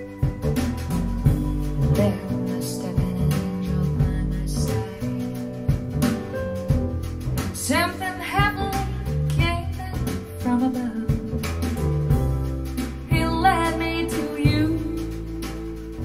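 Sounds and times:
person singing: 0.0 - 5.7, 13.1 - 16.0
deep bass line: 0.0 - 16.0.

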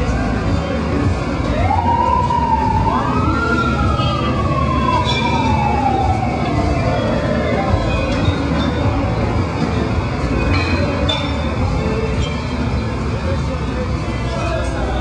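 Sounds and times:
street traffic rumble: 0.0 - 15.0
siren winding up and falling: 1.5 - 8.2.

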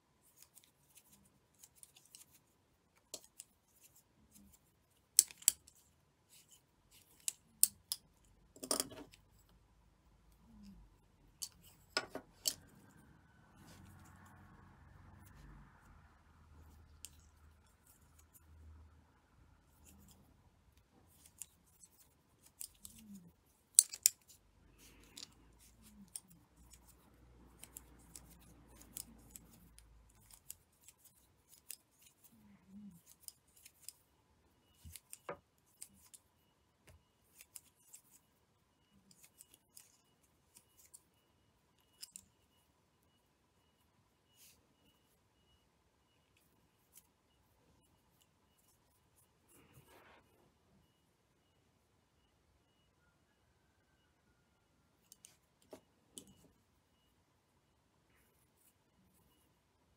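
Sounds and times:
thread rustling: 0.2 - 9.6, 19.6 - 41.1.

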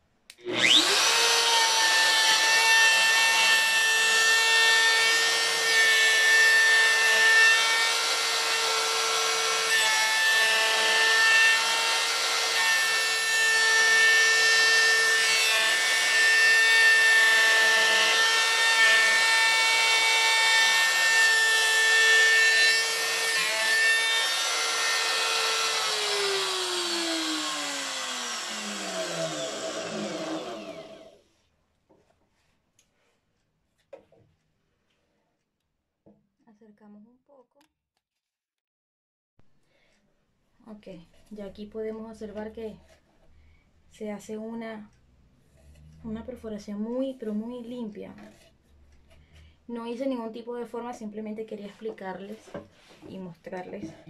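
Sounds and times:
router whining cutting wood: 0.3 - 31.2.

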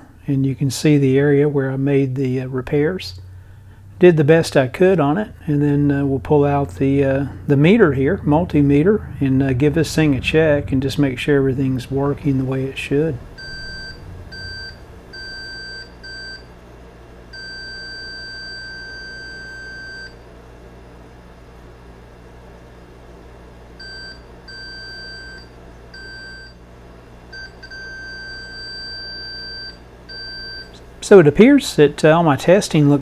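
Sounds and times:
multimeter high beeps: 13.4 - 16.4.

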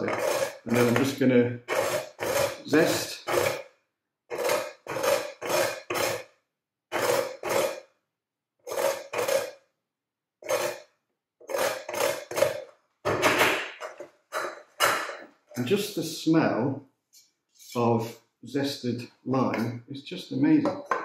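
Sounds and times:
peel rasping on metal grater: 0.0 - 3.7, 4.3 - 6.3, 6.9 - 7.9, 8.6 - 9.6, 10.4 - 12.7.

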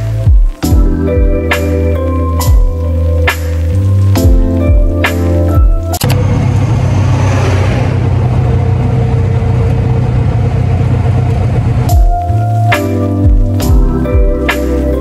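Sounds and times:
background music: 0.0 - 9.1, 11.8 - 15.0
vehicle engine and road noise: 6.0 - 12.8.

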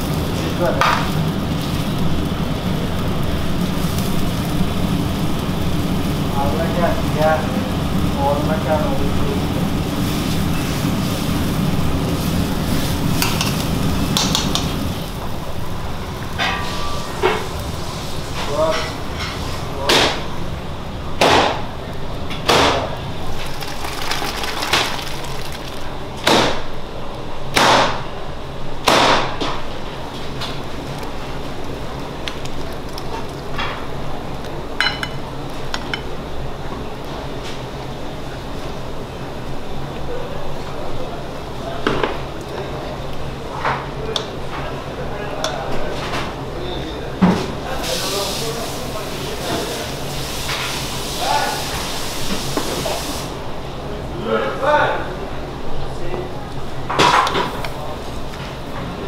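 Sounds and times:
sauce simmering: 0.0 - 18.4, 23.0 - 26.2, 30.0 - 35.8
gas stove burner rumble: 0.0 - 54.0.

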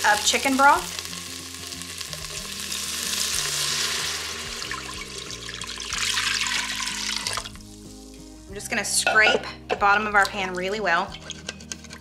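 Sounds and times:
broth sizzling in hot pot: 0.0 - 9.3.

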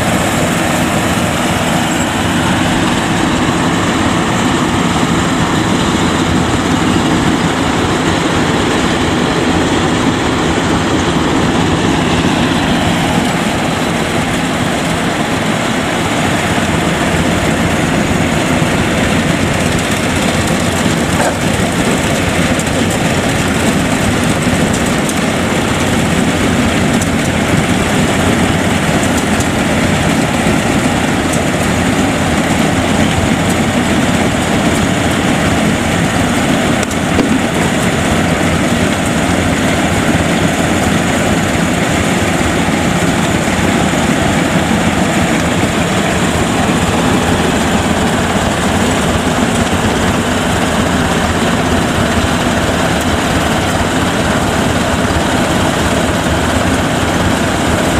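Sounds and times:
combine harvester running: 0.0 - 57.9.

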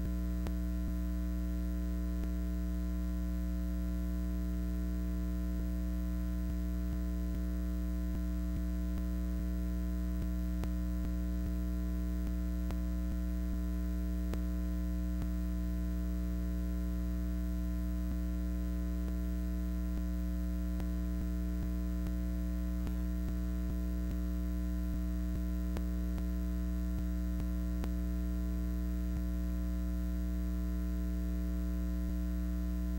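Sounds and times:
faint ticks: 0.0 - 1.0, 2.1 - 2.5, 10.2 - 11.6, 12.2 - 13.6, 14.3 - 15.5, 19.9 - 28.1
electrical mains hum: 0.0 - 32.9.

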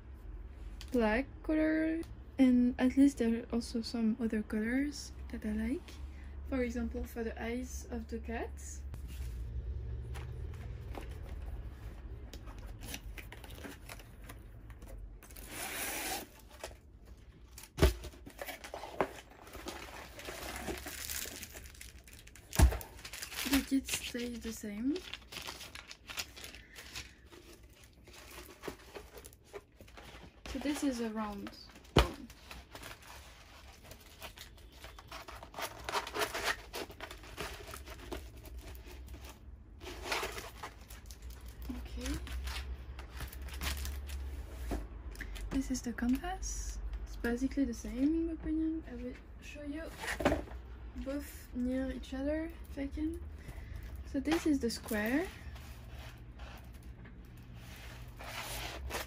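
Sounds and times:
packaging rustling and crinkling: 10.3 - 15.5, 16.2 - 44.7.

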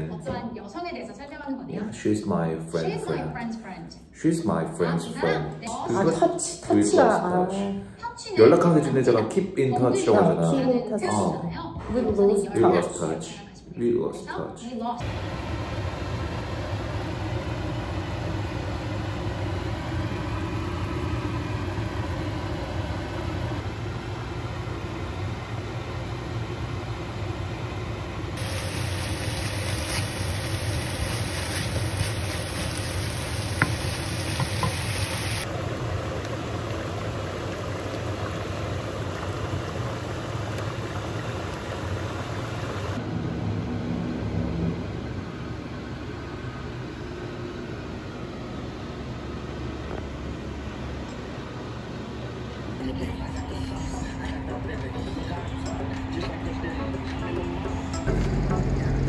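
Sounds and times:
low motor hum: 15.0 - 59.0
food cooking in frying pan: 28.4 - 43.0.

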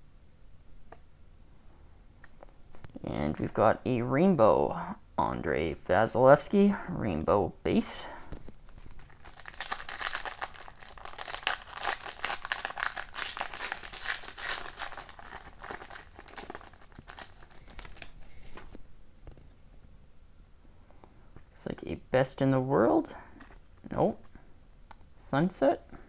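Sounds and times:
foil wrapper tearing and crinkling: 8.7 - 18.2.

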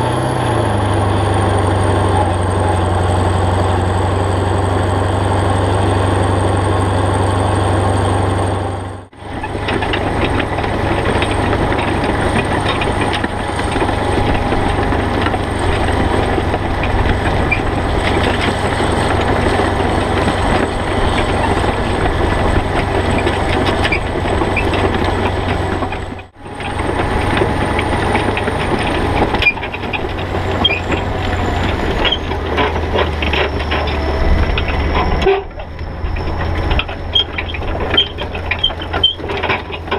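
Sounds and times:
tractor diesel engine running: 0.0 - 39.9
disc harrow clattering: 9.2 - 39.9.

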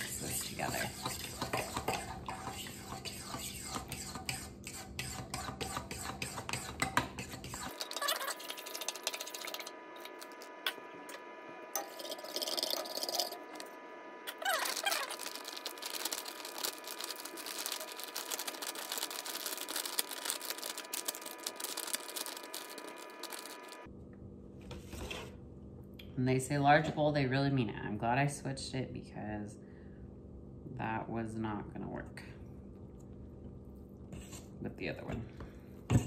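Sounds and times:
powder hissing into bowl: 14.3 - 23.9
plastic bag crinkling: 14.4 - 23.9.

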